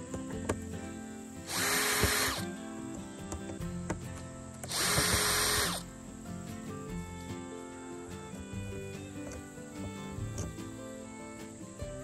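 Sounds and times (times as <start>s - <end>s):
cordless drill running: 1.4s - 2.5s, 4.7s - 5.8s.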